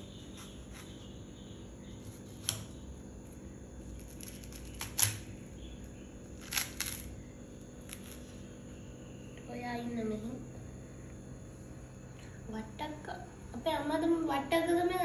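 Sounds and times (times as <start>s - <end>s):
knife cutting watermelon: 0.0s - 1.2s, 1.9s - 2.9s.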